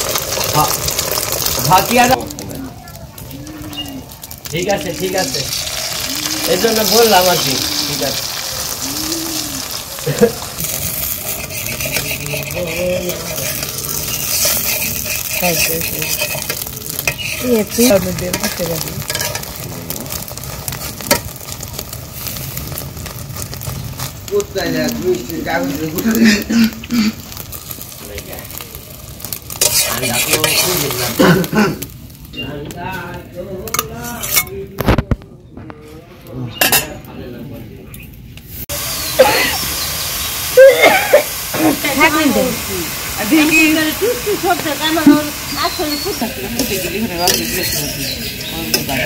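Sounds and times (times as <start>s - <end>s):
omelette sizzling in oil: 0.0s - 34.9s, 38.4s - 49.0s
steady hiss: 3.4s - 34.5s, 38.3s - 49.0s
metal spatula scraping a pan: 9.6s - 19.6s, 29.3s - 31.2s, 33.7s - 34.6s, 43.3s - 49.0s.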